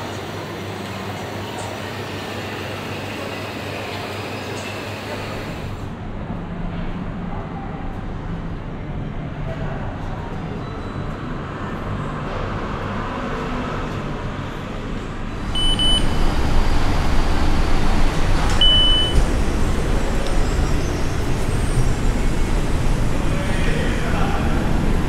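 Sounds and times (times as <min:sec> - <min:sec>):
card reader beeping: 0:15.4 - 0:19.8.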